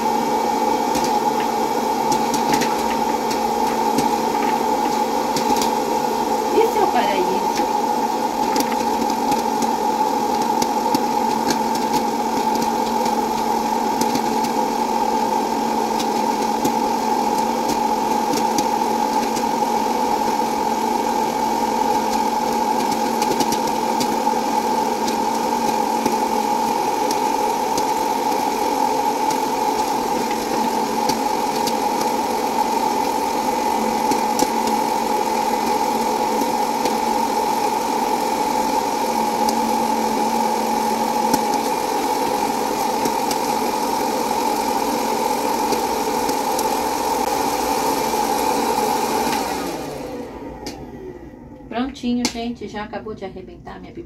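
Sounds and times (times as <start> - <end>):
popcorn kernels popping: 0.0 - 49.6
popcorn popper fan whine: 0.0 - 53.1.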